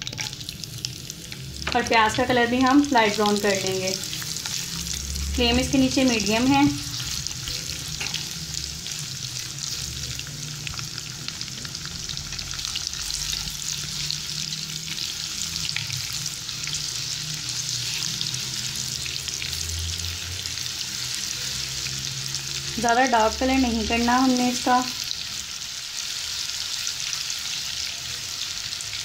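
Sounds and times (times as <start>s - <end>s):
onions sizzling in hot oil: 0.0s - 29.0s.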